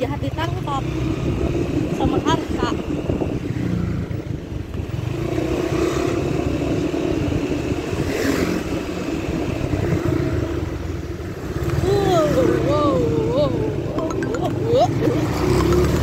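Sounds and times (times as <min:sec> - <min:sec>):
wind rumble on microphone: 0:01.2 - 0:05.2
motorcycle engine running: 0:08.8 - 0:16.0.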